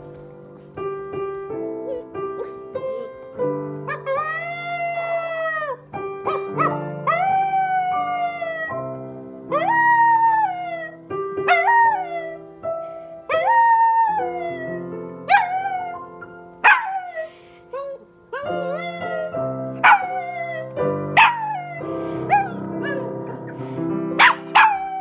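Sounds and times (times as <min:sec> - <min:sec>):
sustained piano notes: 0:00.0 - 0:25.0
small dog howling: 0:07.0 - 0:08.8, 0:17.8 - 0:21.8, 0:24.5 - 0:25.0.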